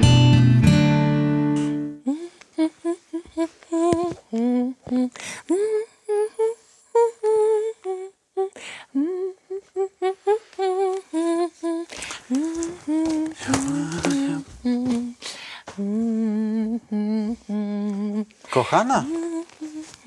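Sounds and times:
woman humming: 2.0 - 18.4, 19.0 - 20.0
faint clicks and rustles: 9.6 - 20.0.

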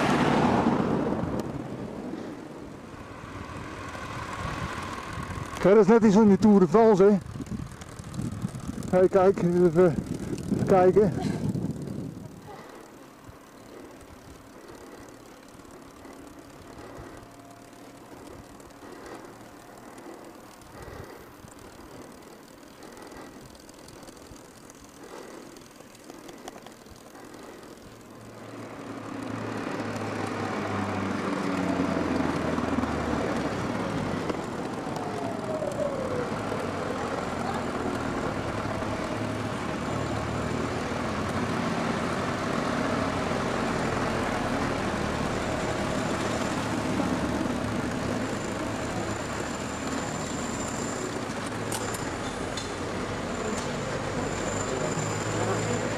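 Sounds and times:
vehicle passing by: 0.0 - 12.9, 27.2 - 55.9
road traffic noise: 0.0 - 55.9
vehicle engine: 0.0 - 55.9.

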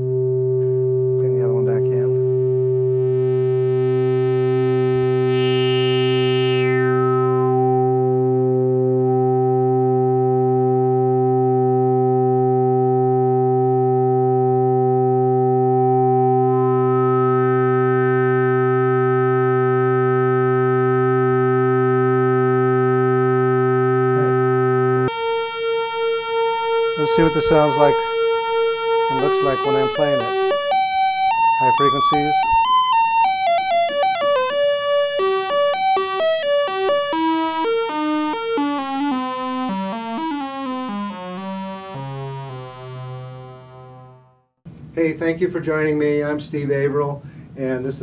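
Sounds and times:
synthesizer low drone: 0.0 - 44.5.

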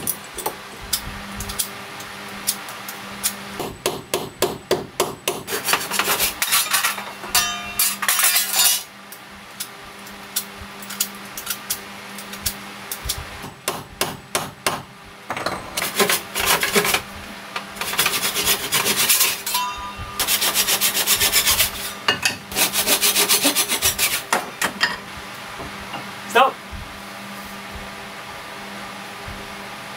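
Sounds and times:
handsaw cutting wood: 5.3 - 6.5, 15.9 - 17.0, 17.8 - 19.5, 20.2 - 24.3.

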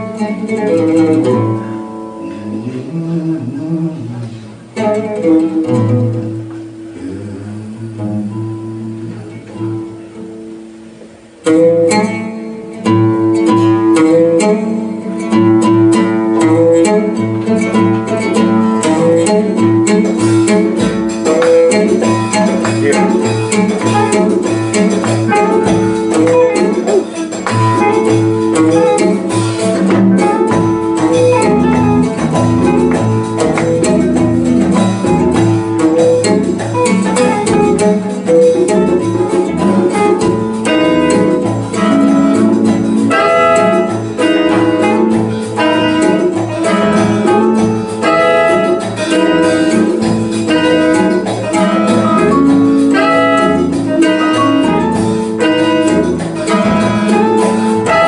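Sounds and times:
saxophone: 0.0 - 10.5, 11.4 - 58.0
conga drums: 0.0 - 58.0
jazz band playing: 0.0 - 58.0
walking bass line: 0.0 - 58.0
trumpet: 18.0 - 58.0.

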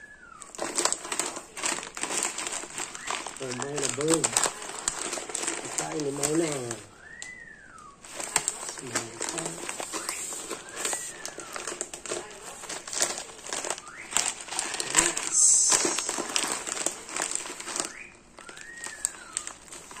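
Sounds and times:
rising and falling whistles: 0.0 - 0.7, 5.9 - 8.1, 13.8 - 16.6, 17.8 - 20.0
plastic bag crinkling: 0.2 - 7.3, 7.9 - 20.0.

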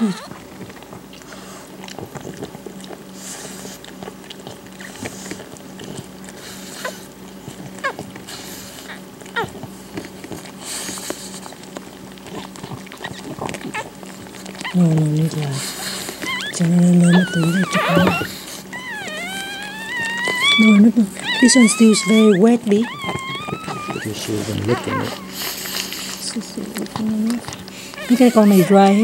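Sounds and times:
puppies squeaking: 0.0 - 0.4, 12.3 - 26.2, 26.9 - 29.0
steady low hum: 0.0 - 29.0
wet licking and rustling: 0.0 - 29.0.

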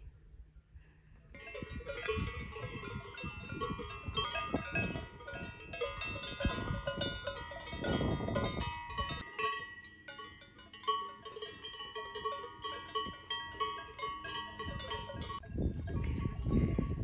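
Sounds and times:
cowbells clanking: 1.4 - 17.0.

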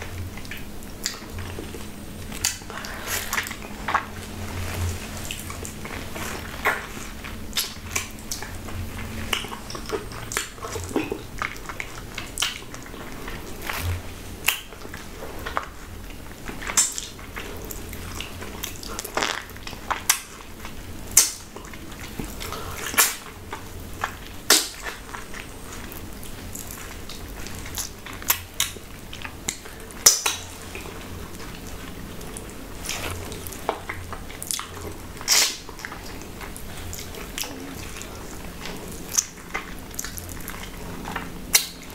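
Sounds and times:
mouth smacks eating fruit: 18.0 - 20.4, 32.2 - 41.9.

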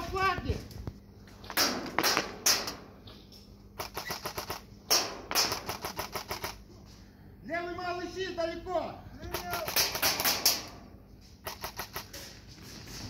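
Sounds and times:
airsoft rifle shots: 1.6 - 2.9, 3.8 - 6.6, 9.3 - 10.8, 11.4 - 12.1.

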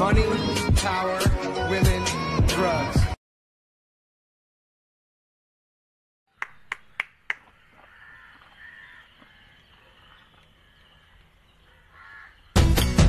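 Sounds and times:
faint outdoor background: 0.0 - 3.2, 6.3 - 13.0
hand claps: 6.4 - 7.6.

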